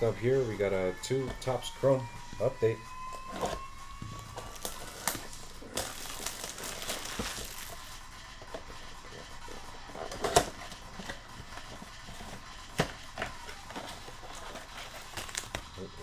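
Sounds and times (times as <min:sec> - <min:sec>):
plastic shrink wrap crinkling: 0:03.2 - 0:08.0, 0:13.3 - 0:15.9.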